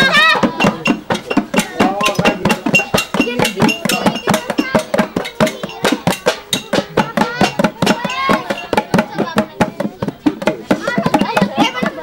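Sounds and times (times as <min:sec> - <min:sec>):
drum and percussion music: 0:00.0 - 0:12.0
voices: 0:00.0 - 0:12.0.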